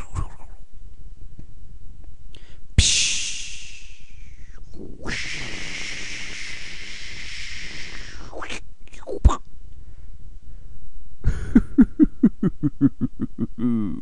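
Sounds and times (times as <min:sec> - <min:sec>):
mouth-made steady shhh hiss: 0:00.0 - 0:14.0
mouth-made sharp pshh: 0:02.8 - 0:09.1.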